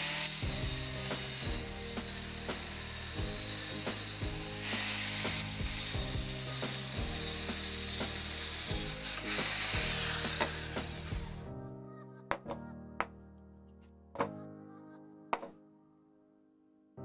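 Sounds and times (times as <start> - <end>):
angle grinder cutting steel: 0.0 - 11.4
background music with steady beat: 0.0 - 15.6.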